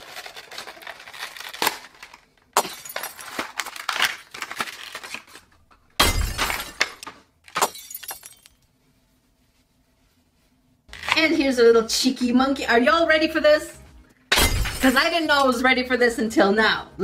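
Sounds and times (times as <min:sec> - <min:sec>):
plastic packaging crinkling: 0:00.0 - 0:05.8.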